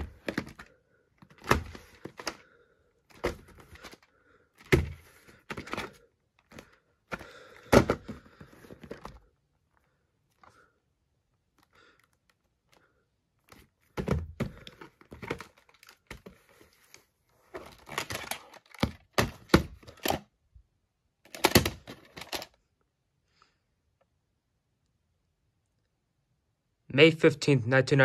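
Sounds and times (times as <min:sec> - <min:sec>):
plastic case clicks and knocks: 0:00.0 - 0:02.4, 0:04.6 - 0:09.2, 0:17.6 - 0:20.2, 0:21.3 - 0:22.5.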